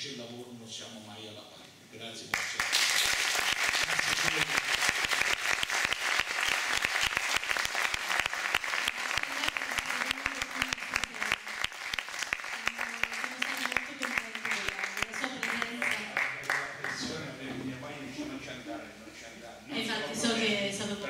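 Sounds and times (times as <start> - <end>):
audience applause: 2.3 - 17.0.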